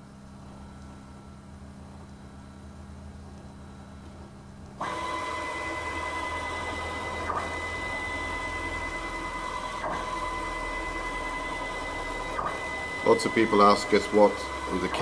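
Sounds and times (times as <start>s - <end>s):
stepper motor whining: 4.8s - 15.0s.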